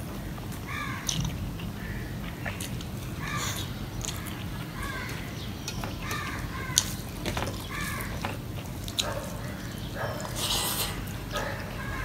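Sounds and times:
crows cawing: 0.2s - 1.1s, 1.8s - 2.3s, 3.2s - 5.4s, 6.0s - 7.0s, 7.6s - 8.3s, 11.4s - 12.0s.

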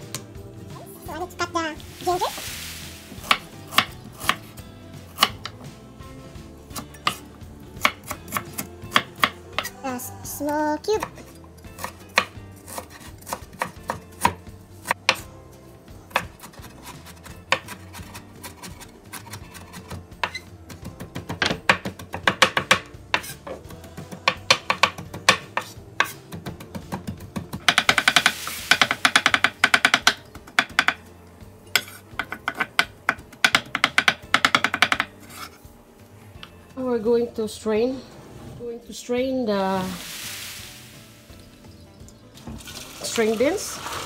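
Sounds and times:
knife chopping on cutting board: 3.2s - 5.6s, 6.7s - 9.8s, 11.8s - 15.3s, 16.1s - 31.0s, 31.8s - 35.6s.

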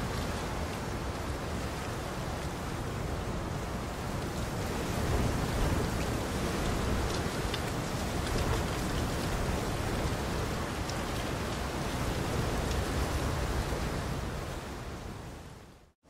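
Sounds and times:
steady rain hiss: 0.0s - 16.0s
rain drop ticks: 5.5s - 12.9s.

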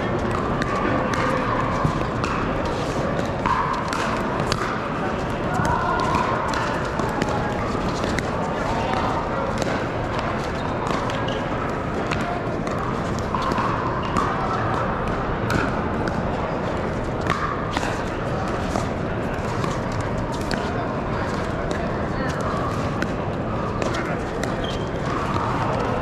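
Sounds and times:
paddles hitting plastic balls: 0.3s - 11.3s.

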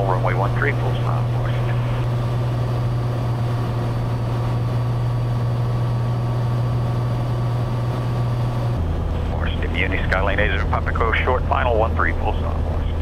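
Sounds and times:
aircraft engine and propeller drone: 0.0s - 13.0s.

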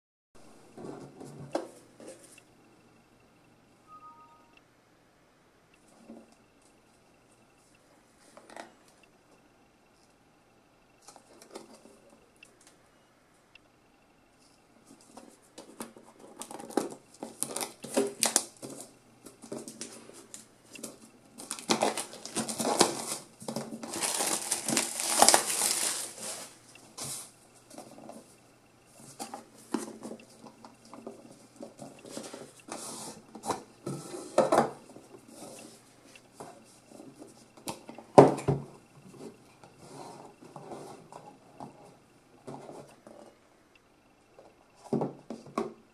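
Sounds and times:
plastic wrap crinkling: 16.3s - 18.8s, 19.4s - 26.6s.

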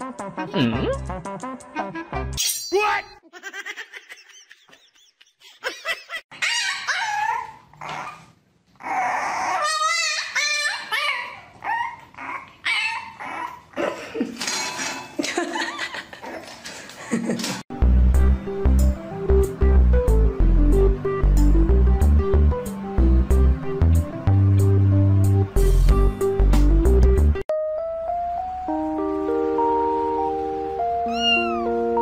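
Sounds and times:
puppy calls: 6.3s - 13.8s, 31.1s - 31.8s.

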